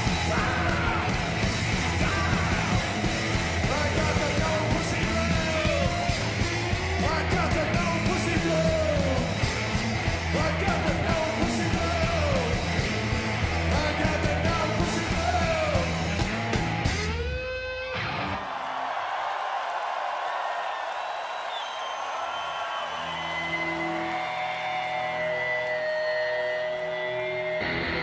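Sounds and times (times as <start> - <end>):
loud rock band playing: 0.0 - 18.6, 23.0 - 28.0.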